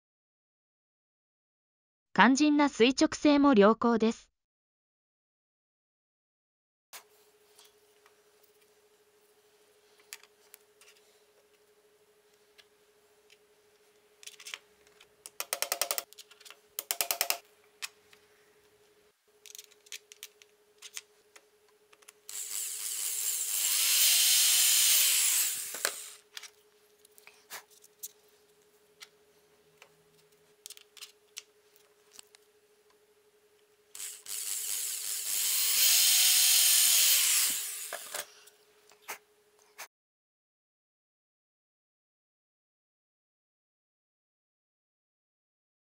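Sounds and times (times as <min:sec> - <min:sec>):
electric drill drilling: 0:22.3 - 0:26.3, 0:34.0 - 0:38.3.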